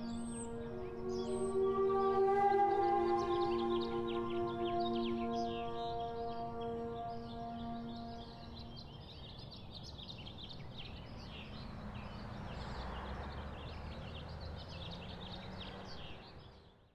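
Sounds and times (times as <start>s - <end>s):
held musical tones: 0.0s - 8.8s
small birds chirping: 0.0s - 16.9s.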